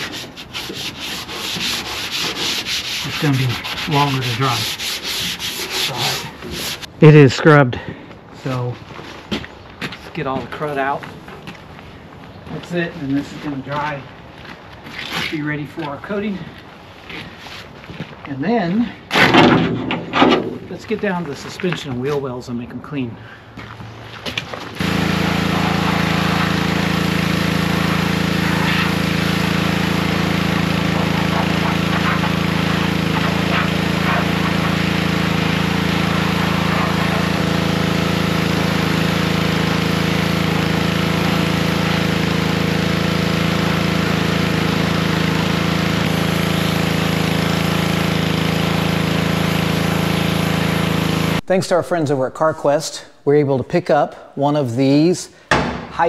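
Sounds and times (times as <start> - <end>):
pressure washer motor humming: 0.0 - 6.9, 24.6 - 51.4
water jet hissing: 0.0 - 6.9, 24.8 - 40.7.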